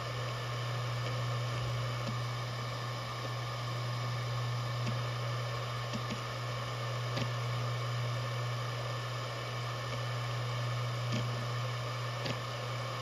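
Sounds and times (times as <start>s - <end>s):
hard drive buzzing hum: 0.0s - 13.0s
hard drive head ticks: 12.2s - 12.5s.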